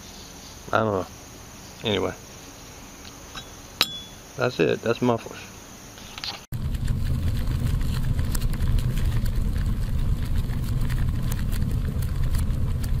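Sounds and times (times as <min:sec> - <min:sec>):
fire crackles: 0:06.5 - 0:13.0
roaring flames: 0:06.5 - 0:13.0.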